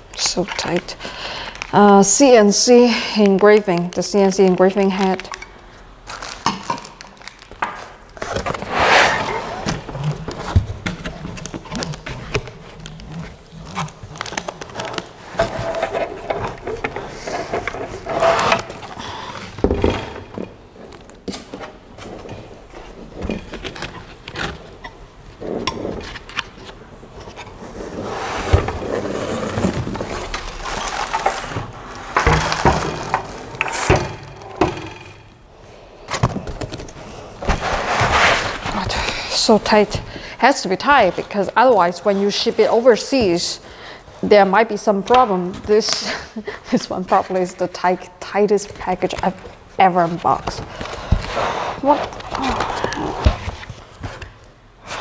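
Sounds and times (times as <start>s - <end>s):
cardboard and foam rustling: 6.1s - 19.7s, 21.7s - 34.0s, 36.2s - 40.0s, 48.6s - 54.4s.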